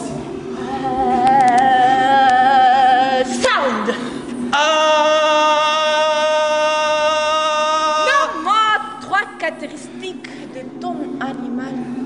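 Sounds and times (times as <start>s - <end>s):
person singing long notes: 0.6s - 3.5s, 4.4s - 8.8s.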